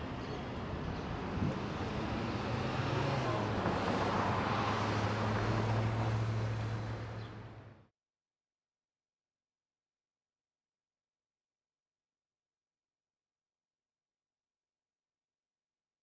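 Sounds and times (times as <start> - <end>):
passing vehicles: 0.0 - 7.9.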